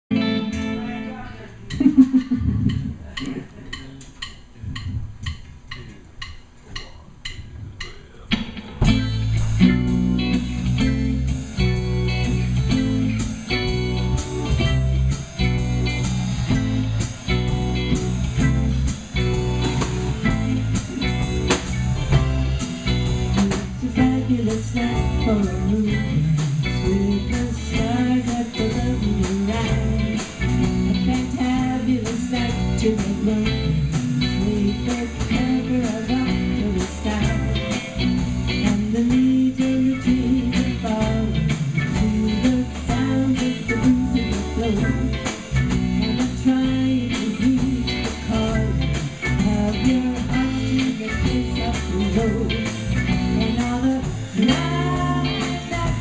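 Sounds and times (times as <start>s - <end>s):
live band playing: 0.1s - 56.0s
cymbal ticks: 3.2s - 8.3s.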